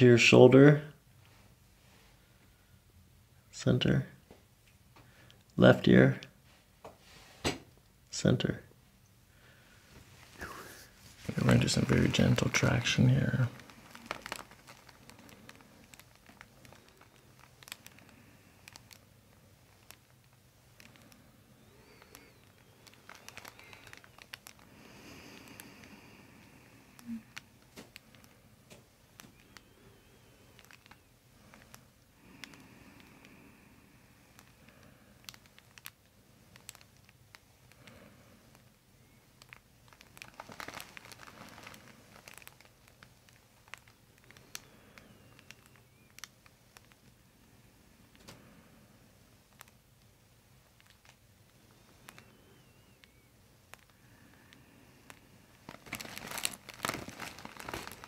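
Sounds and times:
soft breath: 9.2 - 20.0, 20.8 - 36.4, 43.7 - 46.1, 51.5 - 58.0
hands rustling on hair and skin: 10.0 - 18.1
paper crinkling and rustling: 10.2 - 19.1, 21.8 - 26.0, 30.5 - 31.8, 35.2 - 38.6, 39.4 - 47.2, 50.6 - 54.0, 55.1 - 58.0.

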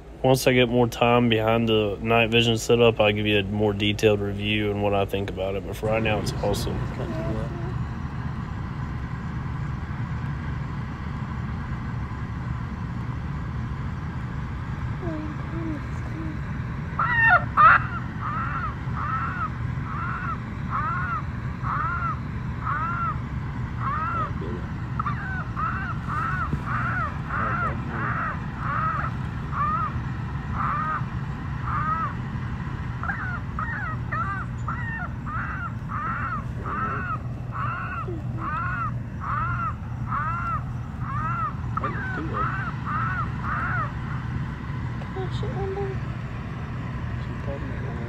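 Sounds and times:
steady low hum: 0.0 - 48.0
electronic chicken distress squawks: 17.0 - 23.2.

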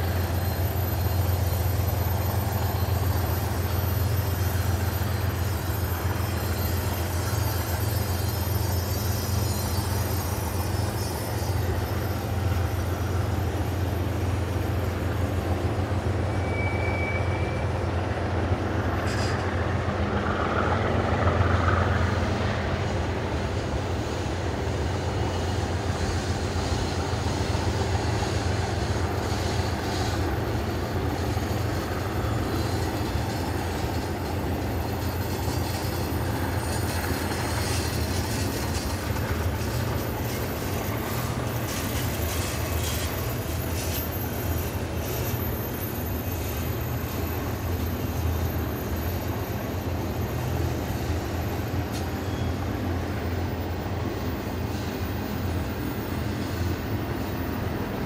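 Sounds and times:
high squeal: 0.0 - 58.0
train wheels rumbling on rail: 0.0 - 58.0.

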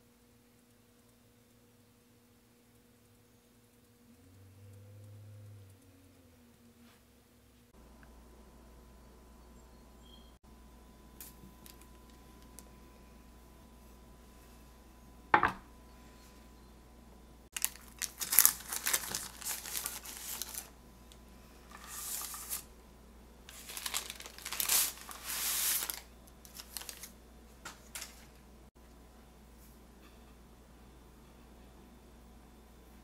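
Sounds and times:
parchment paper crinkling: 17.5 - 20.8, 21.7 - 22.7, 23.5 - 28.4.

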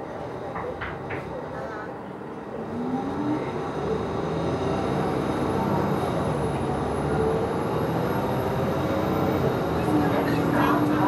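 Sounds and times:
bus engine and road drone: 0.0 - 11.0.

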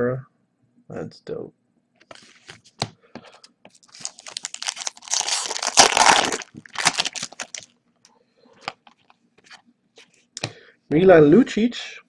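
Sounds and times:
plastic wrapper crinkling and tearing: 3.4 - 7.8.

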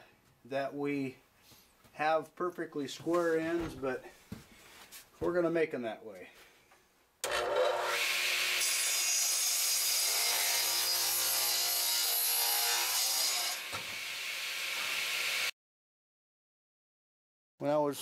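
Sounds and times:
radial arm saw cutting board: 7.2 - 15.5.

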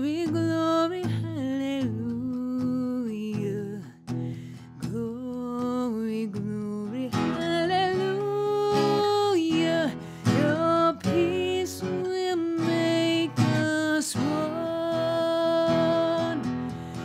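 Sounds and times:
strummed acoustic guitar: 0.0 - 17.0
woman singing: 0.0 - 17.0.

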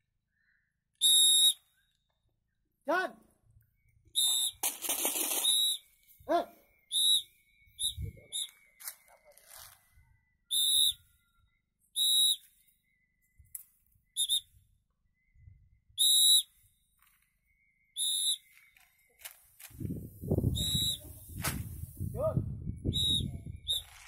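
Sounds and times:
shrill whistle blasts: 1.0 - 2.0, 4.1 - 4.7, 5.3 - 9.5, 10.4 - 13.0, 14.1 - 16.7, 17.6 - 18.8, 20.4 - 21.7, 22.6 - 24.0
low rumble of wind: 19.6 - 24.0.

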